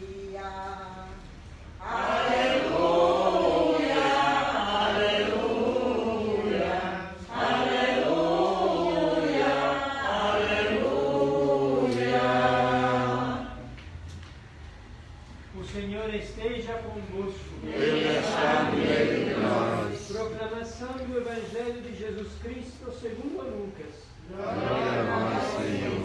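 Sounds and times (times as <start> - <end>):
congregation singing a hymn: 1.7 - 13.9, 17.6 - 20.3, 24.2 - 26.0.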